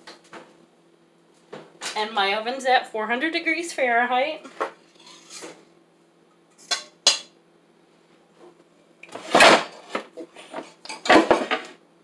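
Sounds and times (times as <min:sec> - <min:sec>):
dishes and utensils clattering: 0:04.9 - 0:05.6, 0:06.6 - 0:07.3, 0:09.2 - 0:11.7.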